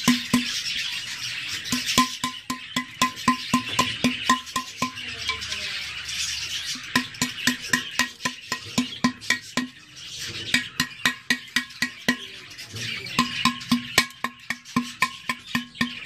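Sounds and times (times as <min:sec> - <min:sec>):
music with clicking beat: 0:00.0 - 0:00.6, 0:01.7 - 0:05.0, 0:06.9 - 0:09.8, 0:10.5 - 0:12.3, 0:13.2 - 0:16.0
tool scraping clay pot: 0:06.8 - 0:16.0.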